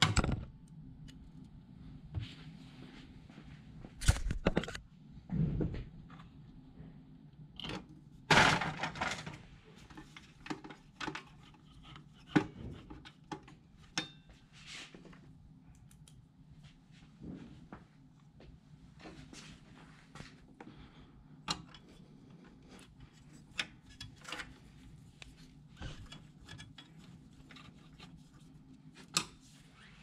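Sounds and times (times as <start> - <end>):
clicks and rattling of printer parts: 7.6 - 14.2.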